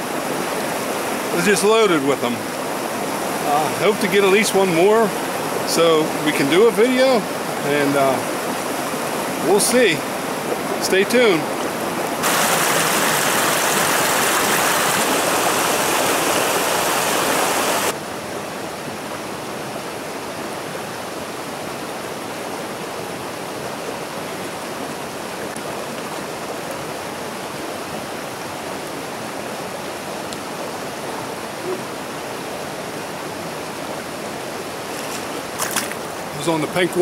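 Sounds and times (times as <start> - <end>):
stream rapids rushing: 0.0 - 37.0
small cascade into pool: 12.2 - 17.9.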